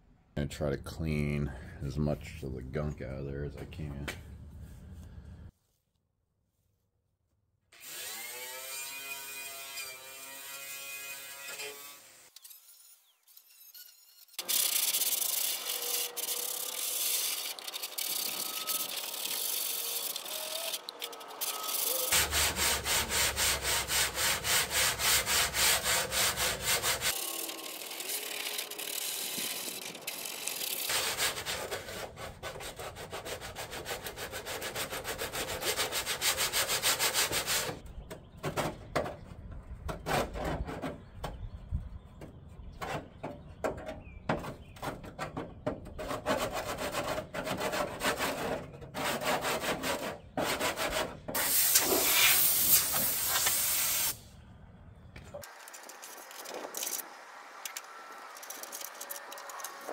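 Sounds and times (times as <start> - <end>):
angle grinder grinding steel: 7.8 - 31.1.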